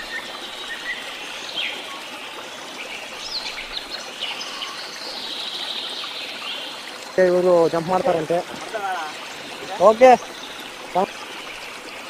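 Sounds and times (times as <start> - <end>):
birds chirping: 0.0 - 12.0
water splashing from swimmers: 0.0 - 12.0.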